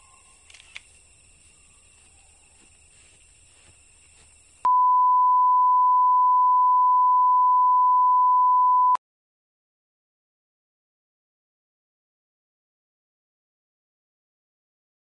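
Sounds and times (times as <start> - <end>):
small click: 0.4 - 0.9
steady electronic test tone: 4.6 - 9.0.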